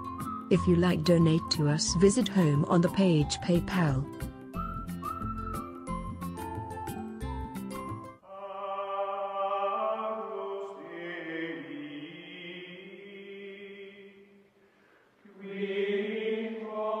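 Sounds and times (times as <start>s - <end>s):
choir-like chanted vocal music: 8.2s - 14.4s, 15.2s - 17.0s.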